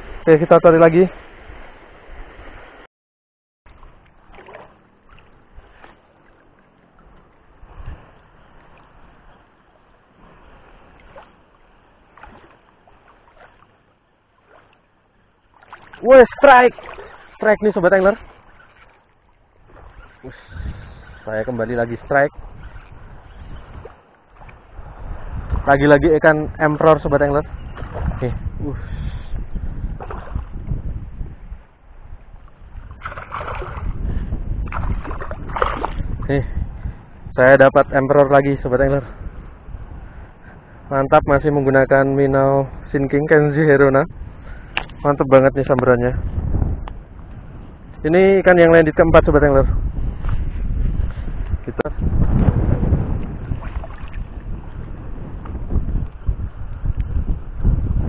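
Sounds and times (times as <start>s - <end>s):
fish splashing in water: 3.7s - 6.4s, 12.1s - 13.7s, 15.5s - 16.0s, 16.7s - 17.4s, 32.9s - 34.0s, 34.6s - 36.1s
small water splashes: 3.7s - 20.3s, 23.6s - 25.7s, 27.8s - 28.4s, 29.9s - 30.6s, 32.5s - 36.3s, 53.3s - 54.5s
shallow water sloshing and lapping: 3.7s - 21.3s, 21.9s - 25.7s, 27.6s - 28.6s, 29.4s - 30.8s, 32.2s - 36.8s, 49.7s - 57.5s
wind buffeting microphone: 6.8s - 13.6s, 15.5s - 58.0s.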